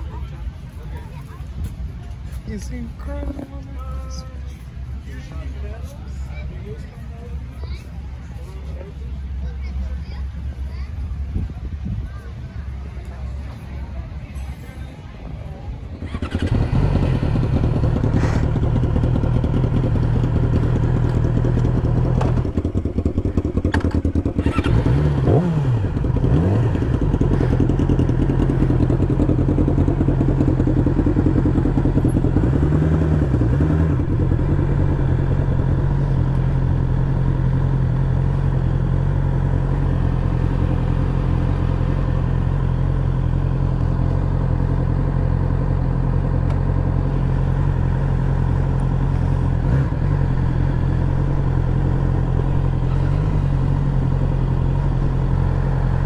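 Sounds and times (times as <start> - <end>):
engine throttle blips: 6.1 - 56.0
motorcycle engine idling: 15.9 - 56.0.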